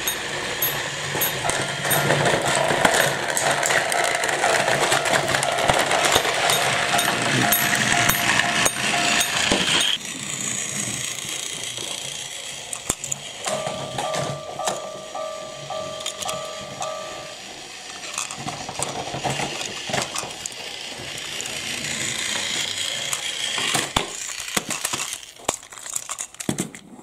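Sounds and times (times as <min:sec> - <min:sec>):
two-note ding: 0:00.0 - 0:02.6, 0:05.0 - 0:10.0, 0:13.5 - 0:17.5
toy train motors whirring: 0:00.0 - 0:26.8
plastic wheels clattering on track: 0:00.0 - 0:27.0.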